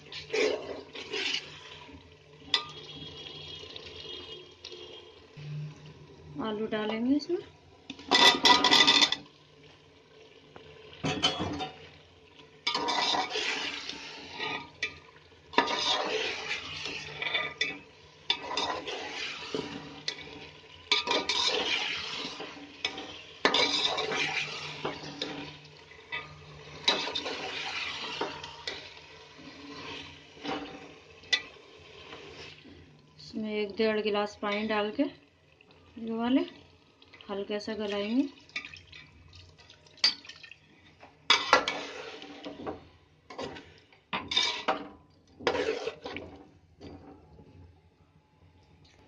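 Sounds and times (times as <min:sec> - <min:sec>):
metal spoon stirring in a pot: 0:00.0 - 0:05.0, 0:07.9 - 0:09.3, 0:11.0 - 0:32.9, 0:36.4 - 0:47.5
spoon scraping and clinking pot: 0:08.0 - 0:09.3, 0:12.6 - 0:32.6, 0:41.3 - 0:47.2.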